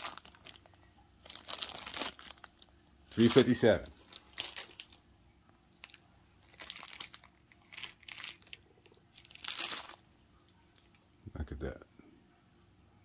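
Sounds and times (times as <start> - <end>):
plastic bag crinkling: 0.0 - 5.1, 5.7 - 11.0.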